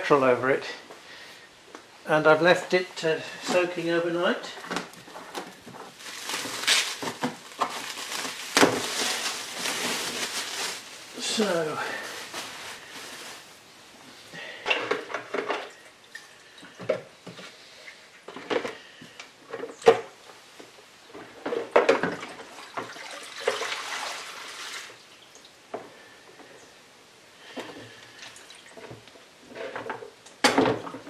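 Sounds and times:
liquid sloshing and splashing: 22.2 - 24.9.

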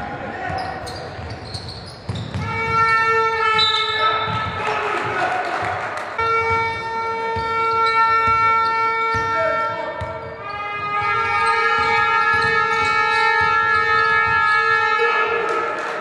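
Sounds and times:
basketball bouncing on hardwood: 2.0 - 3.0
horn blasts: 2.4 - 5.1, 6.1 - 15.7.

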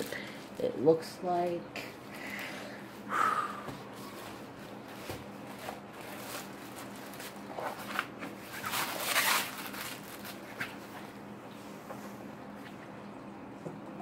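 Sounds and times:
paper and plastic crinkling: 4.1 - 11.0.

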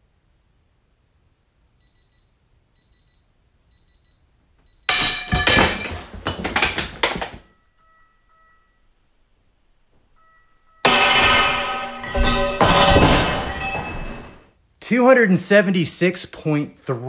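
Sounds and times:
metal clanks and clatter: 4.9 - 7.5, 10.9 - 14.5.

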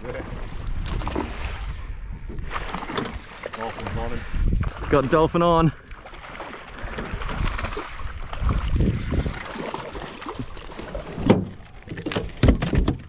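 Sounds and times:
water sloshing around boat: 0.0 - 13.0
wind: 0.0 - 13.0
sharp knocks and thuds: 11.2 - 13.0.

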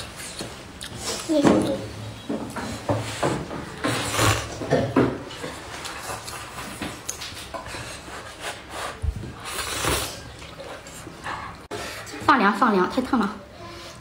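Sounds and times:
person slurping noodles: 3.9 - 4.6, 8.0 - 10.3.

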